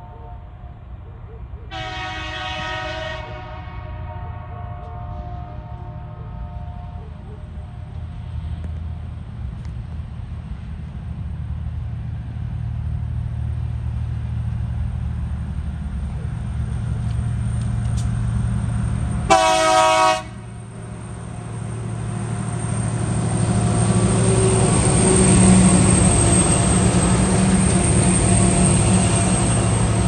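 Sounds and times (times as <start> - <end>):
train horn blast: 0.0 - 0.8, 1.7 - 7.2, 19.3 - 20.5
diesel locomotive engine drone: 0.0 - 30.0.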